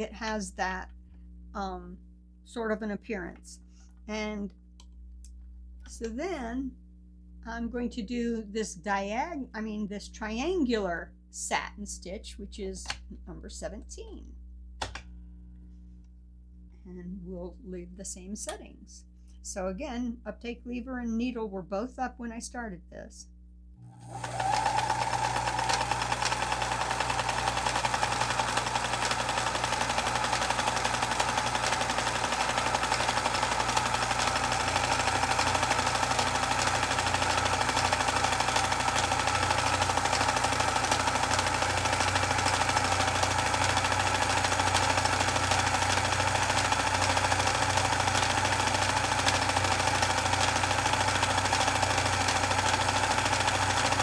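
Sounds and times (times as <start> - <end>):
sewing machine running: 23.8 - 54.0.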